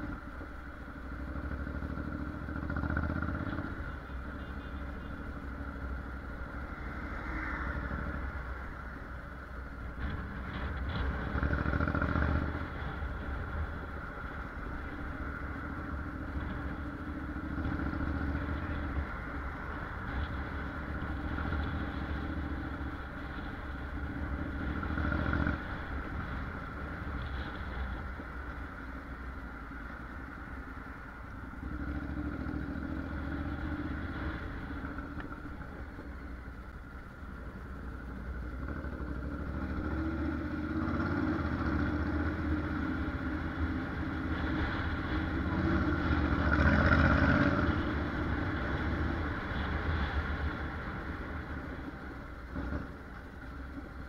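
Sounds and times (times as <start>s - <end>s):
motorcycle engine running: 0.0s - 6.5s.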